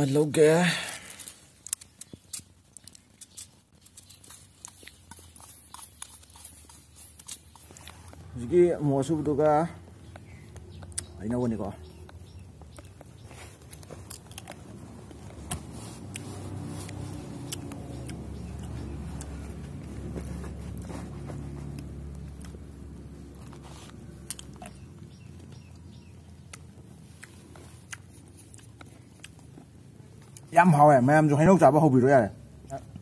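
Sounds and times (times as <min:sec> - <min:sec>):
man chewing with wet mouth clicks: 0:01.4 - 0:08.4, 0:09.9 - 0:11.2, 0:11.8 - 0:19.9, 0:21.7 - 0:30.5
vehicle engine hum: 0:03.6 - 0:33.0.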